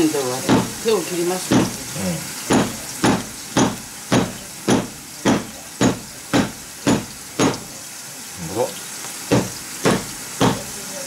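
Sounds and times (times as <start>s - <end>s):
running tap water hiss: 0.0s - 11.0s
knife chopping through fish: 0.4s - 0.8s, 1.5s - 1.8s, 2.5s - 7.7s, 9.3s - 10.7s.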